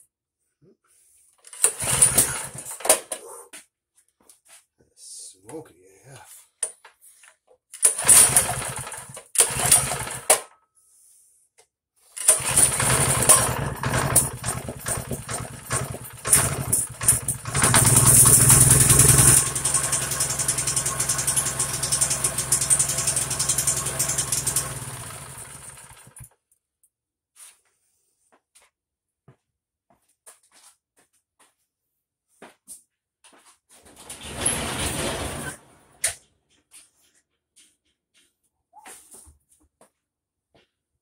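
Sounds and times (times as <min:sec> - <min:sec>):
recoil starter pulls: 0:01.5 - 0:03.0, 0:07.8 - 0:10.4, 0:12.2 - 0:26.3
small engine running: 0:01.6 - 0:02.6, 0:07.8 - 0:10.3, 0:12.2 - 0:26.3.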